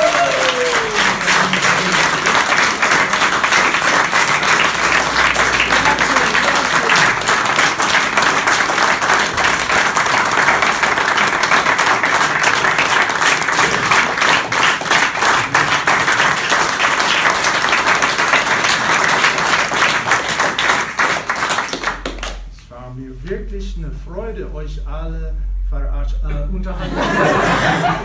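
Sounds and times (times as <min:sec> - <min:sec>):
crowd applauding: 0:00.0 - 0:22.5.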